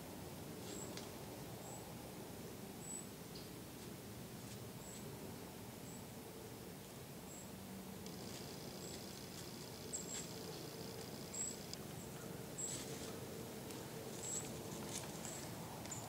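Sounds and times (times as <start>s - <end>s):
rustling dry leaves: 8.1s - 16.0s.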